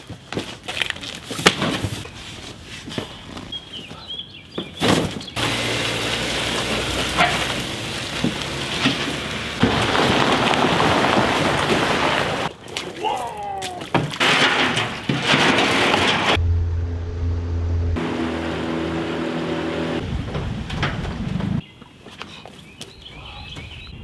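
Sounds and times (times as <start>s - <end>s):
road noise with vehicle hum: 5.3s - 12.5s, 16.3s - 21.6s.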